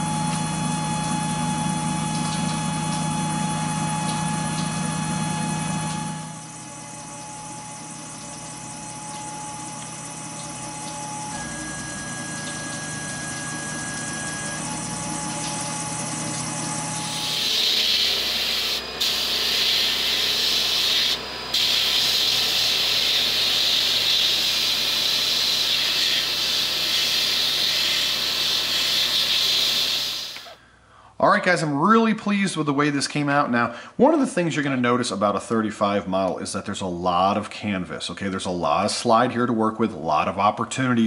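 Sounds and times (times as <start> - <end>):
milling machine spindle whine: 0.0 - 30.6
abrasive blasting gun hissing: 17.0 - 30.6.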